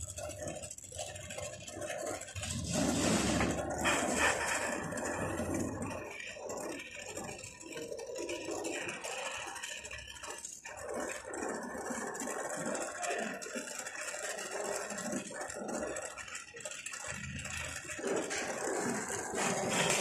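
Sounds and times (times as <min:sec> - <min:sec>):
gas torch hissing: 0:02.4 - 0:05.5.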